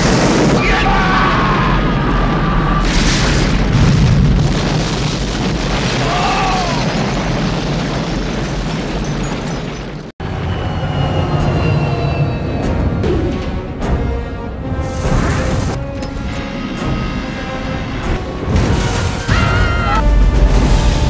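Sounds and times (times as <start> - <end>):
large explosion rumbling: 0.0 - 13.8
aircraft engines droning: 10.2 - 14.7.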